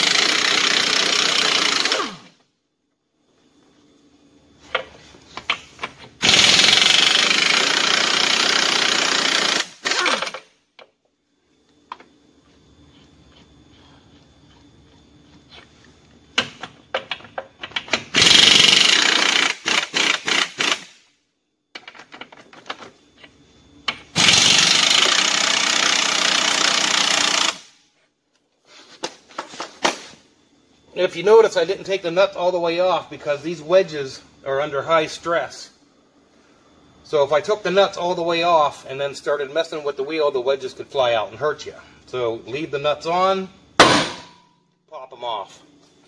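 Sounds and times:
impact wrench hammering: 43.8 - 44.5.

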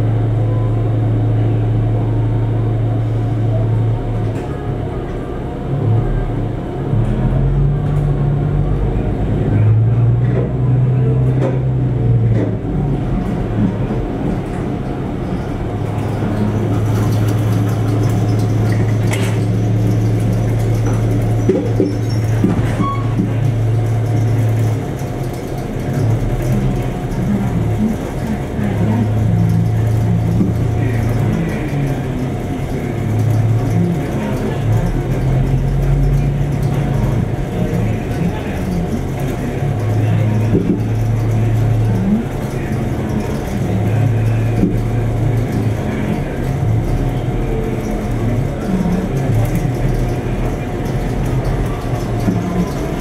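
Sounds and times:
railcar diesel engine humming: 0.0 - 53.0
wheels knocking over rail joints: 13.6 - 53.0.

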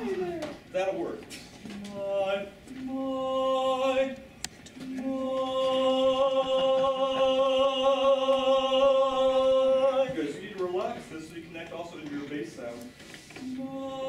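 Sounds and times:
men's chorus singing a cappella: 1.8 - 10.2, 13.4 - 14.0.

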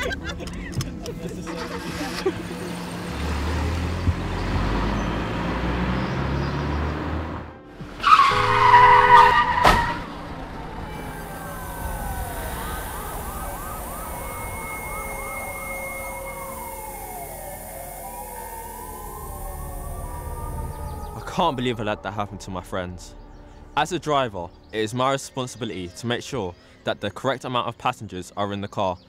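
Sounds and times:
emergency vehicle sirens wailing: 0.0 - 24.6
car engine hum: 0.0 - 24.8
tire screech: 1.5 - 21.9
car crash: 7.9 - 15.4.

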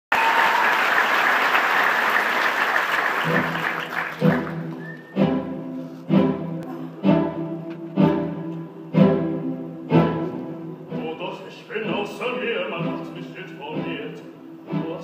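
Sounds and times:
audience applause: 0.1 - 5.2
orchestra string chords: 3.2 - 15.0.

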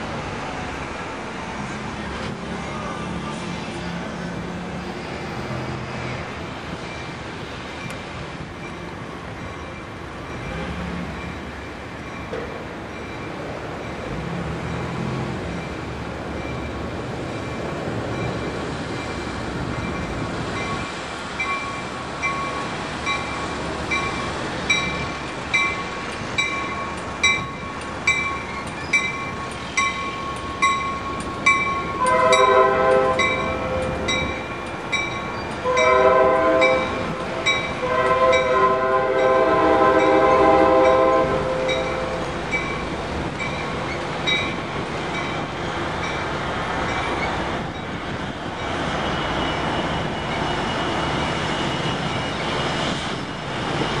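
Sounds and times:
train rumbling past: 0.0 - 54.0
crossing warning bell dinging: 5.8 - 14.4, 15.4 - 54.0
train air horn blasts: 32.0 - 34.0, 35.6 - 42.2.

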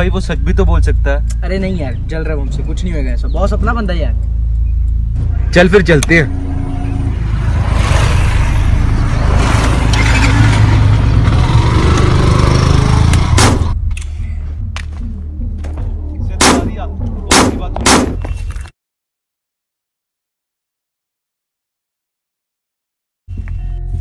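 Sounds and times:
motorcycle engine rumbling: 0.0 - 18.5
handgun shots: 16.4 - 16.7, 17.3 - 18.3.

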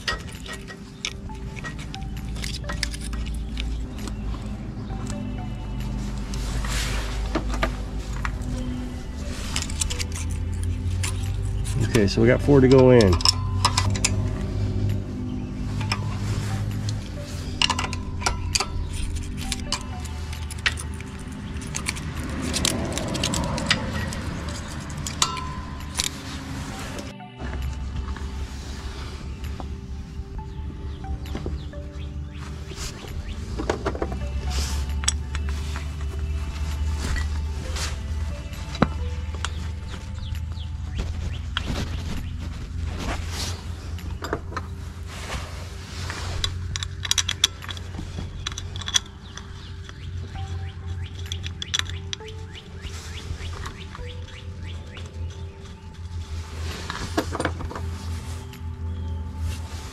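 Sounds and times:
small metal clinks and clicks: 0.0 - 4.4, 7.5 - 15.0, 15.8 - 27.2, 46.4 - 52.8
low steady hum: 0.0 - 59.9
metallic clinks of wrench: 46.4 - 52.4.

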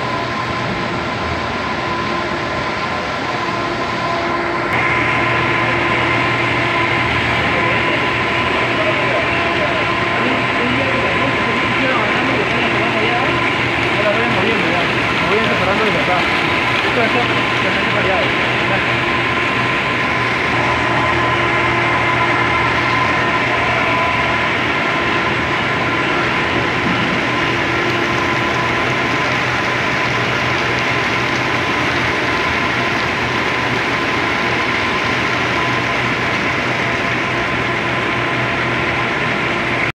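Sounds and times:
machinery hum with whine: 0.0 - 39.9
machinery clatter: 21.9 - 39.9.

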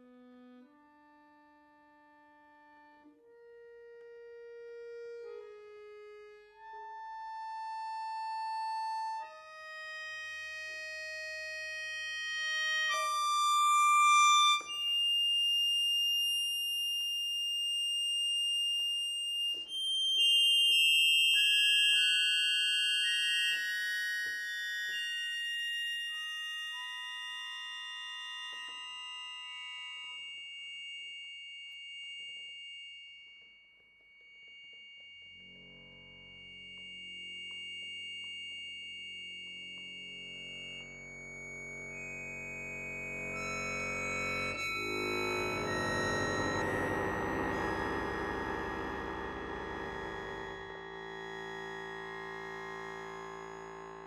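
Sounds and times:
accordion sustained chords: 0.0 - 15.0, 40.0 - 54.0.

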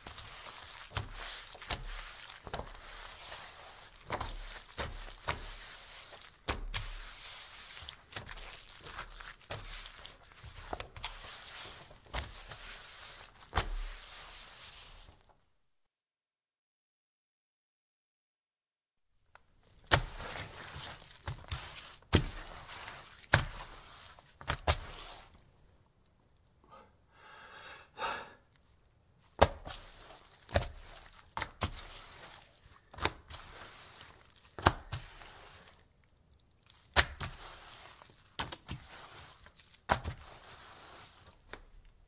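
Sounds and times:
wet cloth slaps: 0.0 - 15.2, 19.7 - 25.4, 29.2 - 35.8, 36.7 - 40.5
squelching cloth: 0.0 - 15.3, 19.6 - 25.6, 29.2 - 36.0, 36.6 - 42.0
wet towel rubbing on wood: 0.0 - 15.3, 19.8 - 25.4, 29.5 - 35.8, 37.2 - 41.4.

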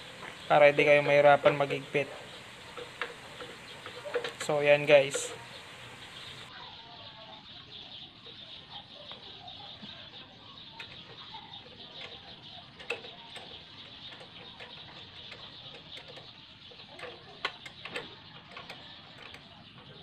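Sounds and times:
steady high hiss: 0.0 - 6.5.

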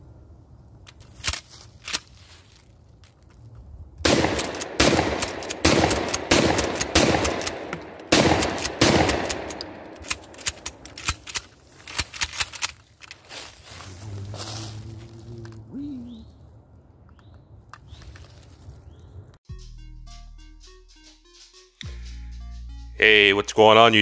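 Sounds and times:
gun handling clicks: 0.8 - 2.2, 4.0 - 13.2
gunshots: 4.0 - 11.4.

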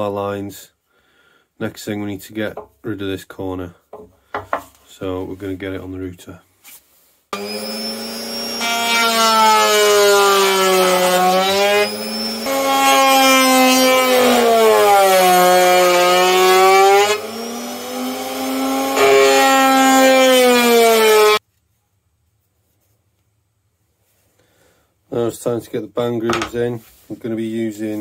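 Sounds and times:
wood router cutting plywood: 7.4 - 21.4.

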